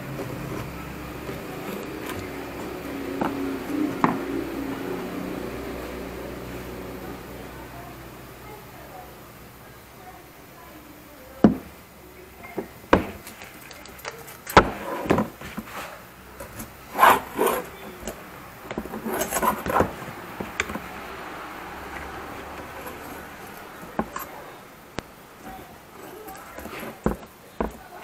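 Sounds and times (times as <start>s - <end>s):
metal knocks and scrapes: 0.0s - 4.8s, 12.6s - 24.6s.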